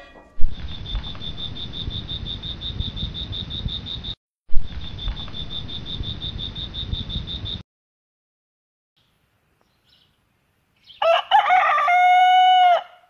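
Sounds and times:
crickets chirping: 0.5 - 7.6.

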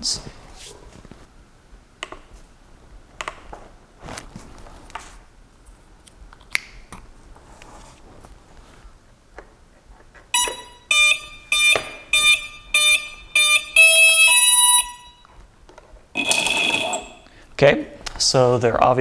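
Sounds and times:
short electronic beeps: 10.4 - 15.2, 16.2 - 17.3.

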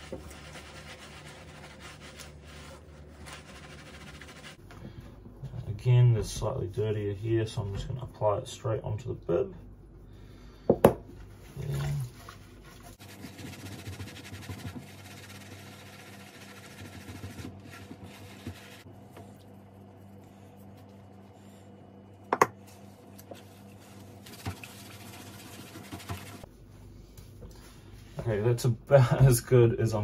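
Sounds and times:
loofah scrubbing wet fabric: 0.0 - 4.6, 11.3 - 21.3, 22.7 - 26.5.

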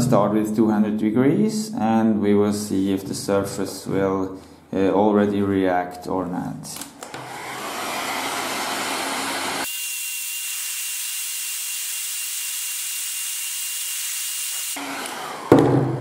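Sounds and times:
heat gun blowing hiss: 7.1 - 15.5.

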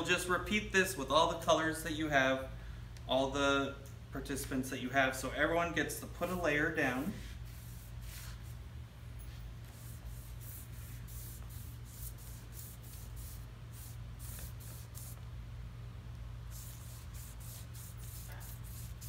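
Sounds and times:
steady low hum: 0.0 - 19.0
foam brush swishing on paper: 7.0 - 8.6, 9.2 - 15.2, 16.5 - 19.0.

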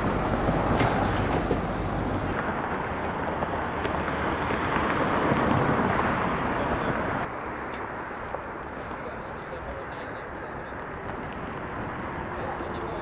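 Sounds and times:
loader engine running: 0.0 - 2.4.

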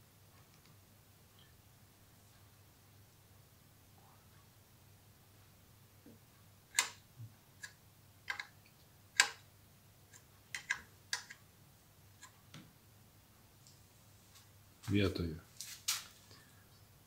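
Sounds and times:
metallic clicks and taps: 7.6 - 8.6, 10.1 - 11.4.

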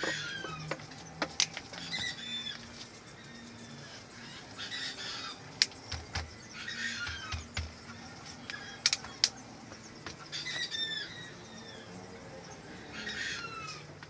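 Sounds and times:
descending bird chirps: 0.0 - 13.9.

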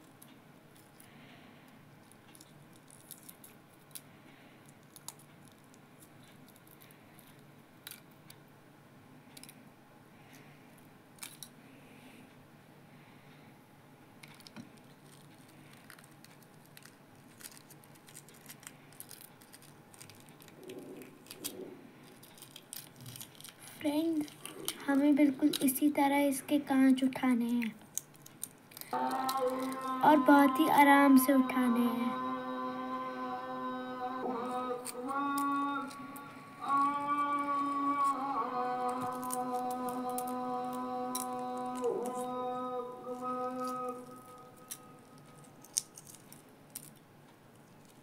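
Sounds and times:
eggshells cracking and peeling: 2.0 - 8.4, 14.2 - 25.9, 27.5 - 30.0, 34.5 - 42.4, 43.1 - 48.0.

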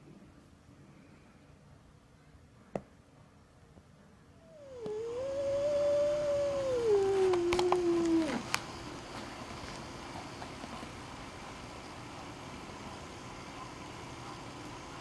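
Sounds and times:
cat yowling angrily: 4.5 - 8.5.

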